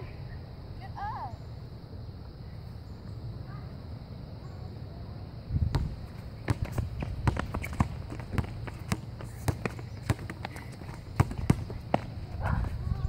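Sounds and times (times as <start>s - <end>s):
basketball bouncing on hard court: 5.7s - 12.7s
running footsteps: 6.1s - 13.0s.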